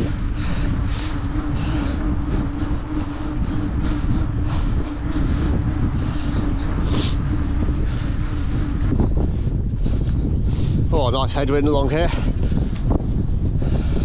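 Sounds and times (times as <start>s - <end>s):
steady low hum: 0.0s - 14.0s
tyre and road rumble: 0.0s - 14.0s
wind buffeting microphone: 0.0s - 14.0s.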